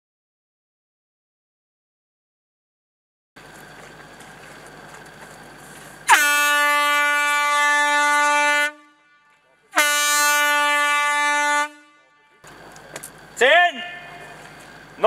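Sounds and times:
warning horn blasts: 6.0 - 12.6.

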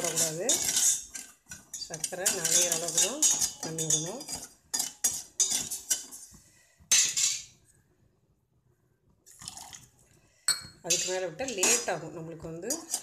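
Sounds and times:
steel ladle scraping a pot: 0.0 - 7.6, 10.8 - 13.0.

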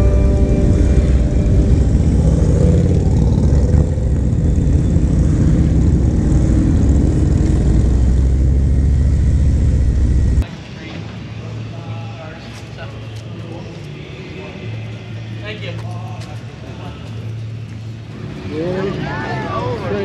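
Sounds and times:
background music: 0.0 - 3.2
motorcycle engine running: 0.0 - 10.4.

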